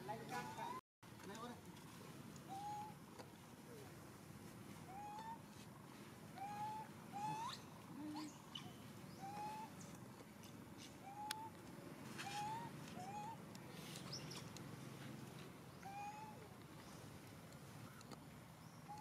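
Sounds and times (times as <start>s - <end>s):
baby monkey coo calls: 2.5s - 3.0s, 4.9s - 5.4s, 6.4s - 9.8s, 11.0s - 11.6s, 12.2s - 13.4s, 15.7s - 16.6s.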